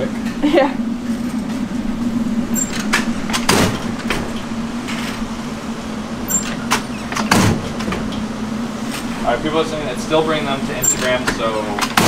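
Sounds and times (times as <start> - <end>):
machine humming: 0.0 - 12.0
sharp knocks and clatters: 6.4 - 8.3, 11.0 - 12.0.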